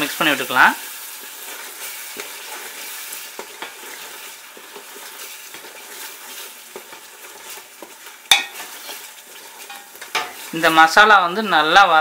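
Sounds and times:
paste sizzling in hot oil: 0:00.0 - 0:12.0
spatula scraping metal pot: 0:01.4 - 0:10.7.

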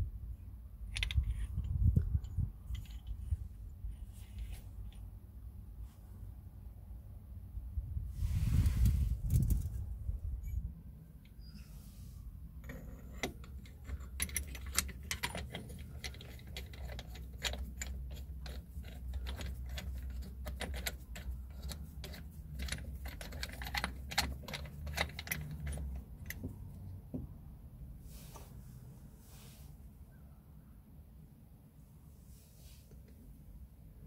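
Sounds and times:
metal parts clinking and rattling: 0:00.9 - 0:03.4, 0:12.6 - 0:26.8.

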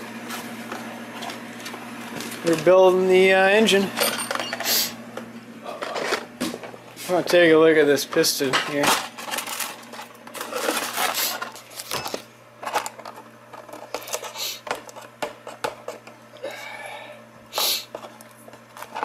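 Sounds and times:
faint steady hum: 0:00.7 - 0:19.0
packaging rustling: 0:08.8 - 0:12.0.

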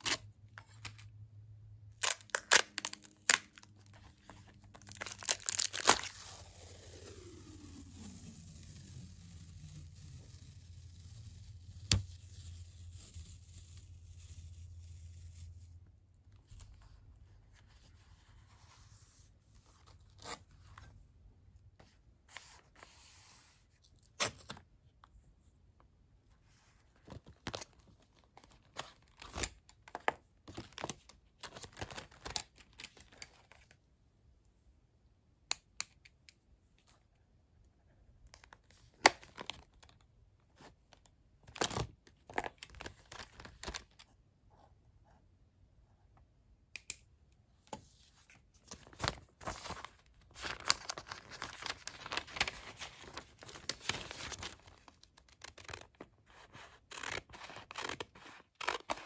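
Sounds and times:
paper rustling: 0:48.2 - 0:54.8.

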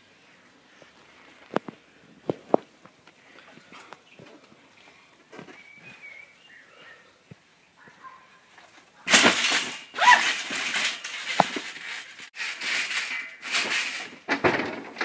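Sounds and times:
person landing on trampoline: 0:09.1 - 0:15.0.

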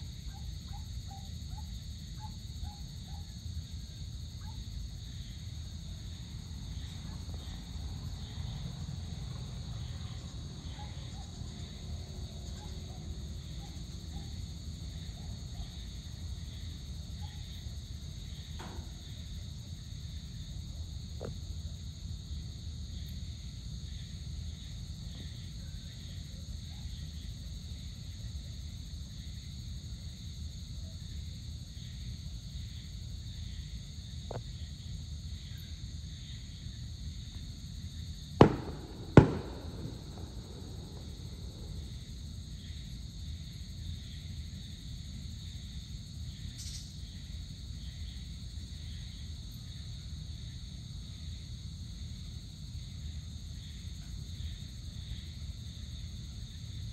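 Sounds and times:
insects trilling: 0:00.0 - 0:56.9
faint distant pops: 0:38.4 - 0:42.0
loud sharp bangs: 0:38.4 - 0:42.0
low steady rumble: 0:38.4 - 0:43.5.

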